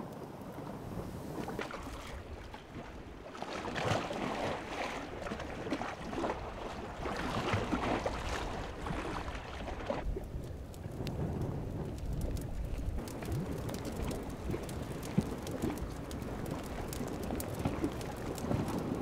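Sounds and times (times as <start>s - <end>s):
wind on microphone: 0.0s - 19.0s
hot oil crackling and popping: 10.0s - 19.0s.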